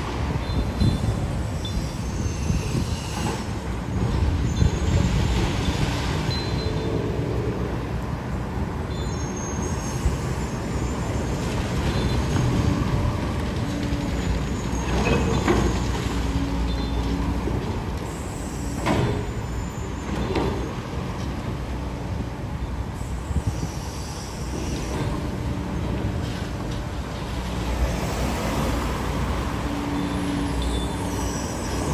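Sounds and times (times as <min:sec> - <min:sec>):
road traffic rumbling: 0:00.0 - 0:31.9
high squeal: 0:00.4 - 0:03.6, 0:08.9 - 0:12.4, 0:23.0 - 0:25.3, 0:29.6 - 0:31.9.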